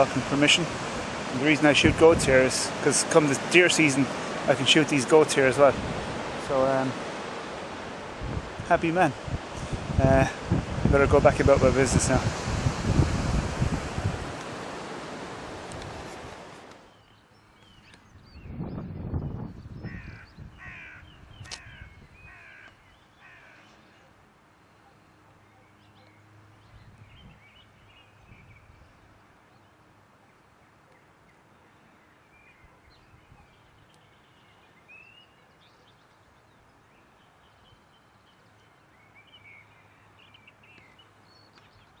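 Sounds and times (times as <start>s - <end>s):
steady outdoor hiss: 0.0s - 42.0s
crow cawing: 19.9s - 23.8s.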